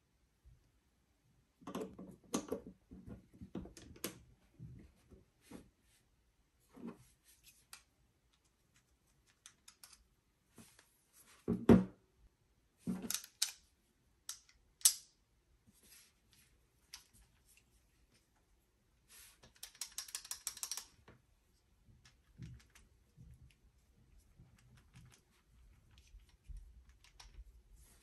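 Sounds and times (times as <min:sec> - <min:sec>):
small tools clicking in slots: 0:09.3 - 0:10.0, 0:13.1 - 0:13.7, 0:14.3 - 0:15.1, 0:19.4 - 0:21.0.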